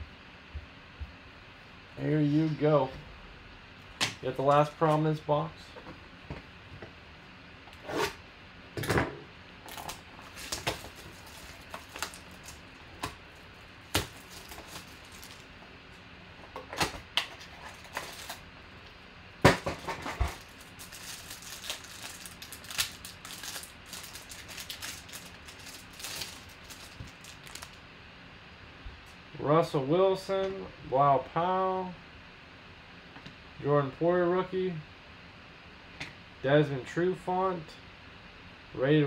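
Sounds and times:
packaging crinkling and rustling: 9.6s - 15.6s, 16.5s - 18.4s, 19.6s - 27.8s
loud cardboard crack: 9.7s - 13.2s, 13.8s - 15.5s.

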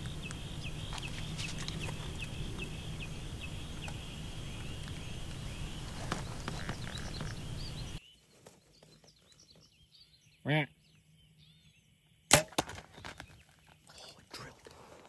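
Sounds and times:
birds chirping: 0.0s - 15.0s
arrow striking animal: 12.3s - 12.9s
bow shot crack: 12.3s - 12.9s.

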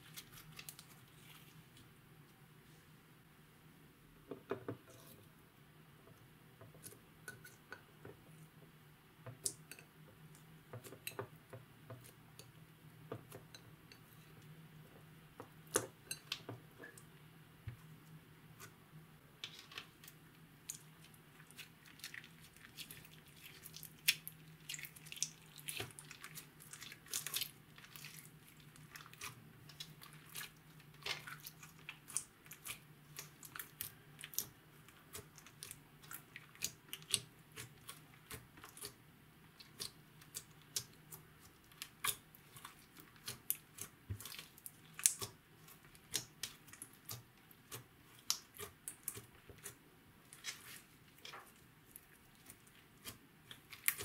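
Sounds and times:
slime squishing with sticky pops: 20.6s - 54.0s.

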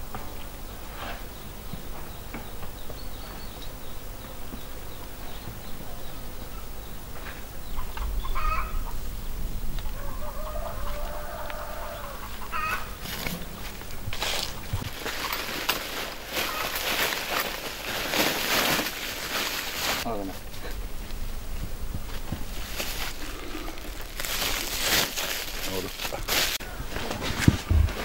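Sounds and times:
chickens clucking: 7.3s - 17.9s
rustling: 13.0s - 28.0s.

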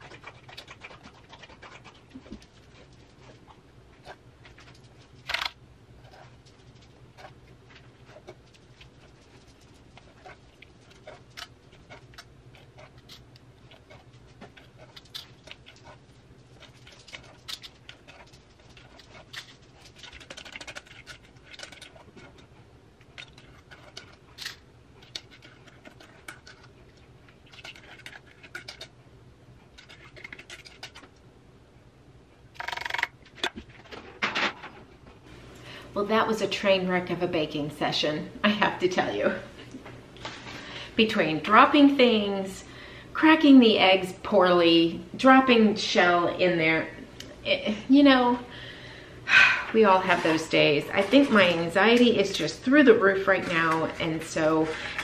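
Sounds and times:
utensils scraping metal bowl: 49.8s - 55.0s.

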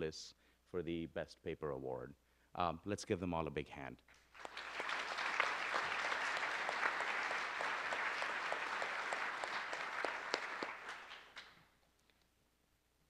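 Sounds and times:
audience applauding: 4.2s - 11.6s.

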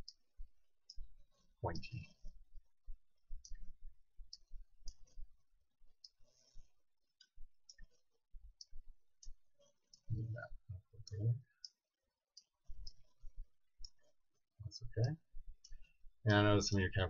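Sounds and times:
computer mouse clicking: 4.3s - 5.2s, 6.0s - 8.0s.

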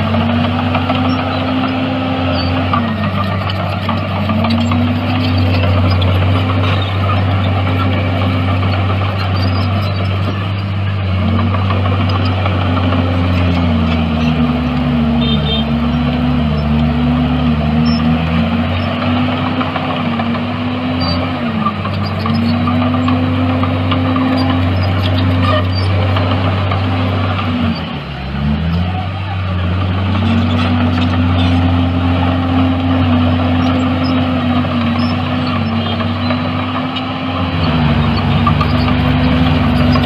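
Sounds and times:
bulldozer diesel engine: 0.0s - 40.0s
second lower engine tone: 15.0s - 19.0s.

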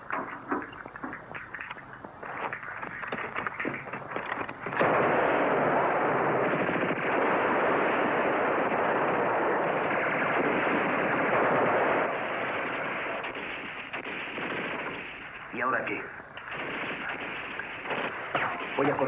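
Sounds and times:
rapid rifle and machine-gun fire: 0.1s - 19.0s.

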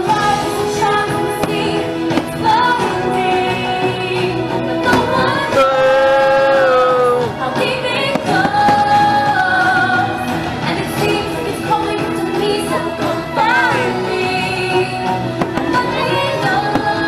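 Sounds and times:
music with held sung notes: 0.0s - 17.0s
fireworks cracks: 1.1s - 3.1s, 8.0s - 9.6s, 15.4s - 17.0s.

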